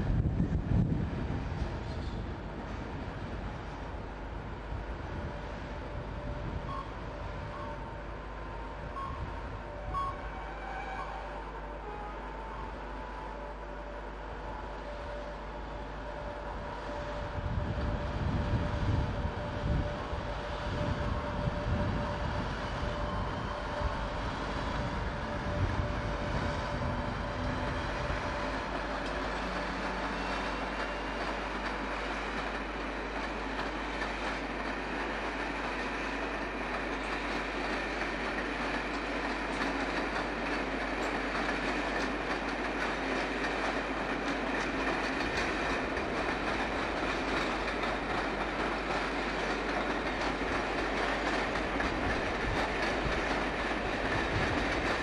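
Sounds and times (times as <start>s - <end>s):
heavy low train rumble: 0.0s - 55.0s
train wheels clattering over rail joints: 27.6s - 55.0s.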